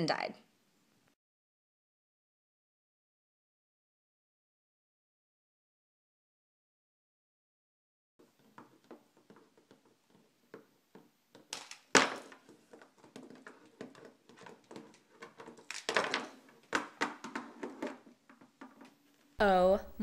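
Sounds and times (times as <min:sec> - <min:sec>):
plastic toys clattering on table: 0:11.4 - 0:19.0.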